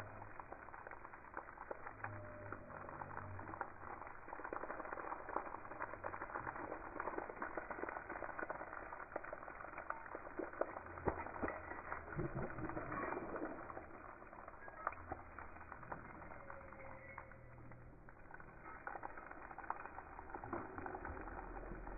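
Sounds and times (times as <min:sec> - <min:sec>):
water splattering on paving: 0:00.0 - 0:21.9.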